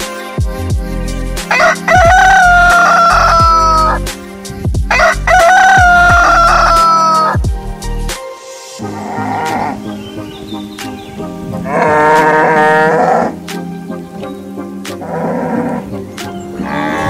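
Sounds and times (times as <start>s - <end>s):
music with deep regular beat: 0.0s - 17.0s
rooster crowing: 1.5s - 4.0s, 4.9s - 7.4s.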